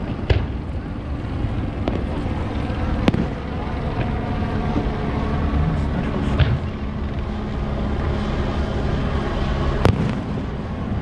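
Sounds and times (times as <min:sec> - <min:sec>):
steady low rumble: 0:00.0 - 0:11.0
fireworks bursting: 0:03.0 - 0:03.4, 0:09.8 - 0:10.5.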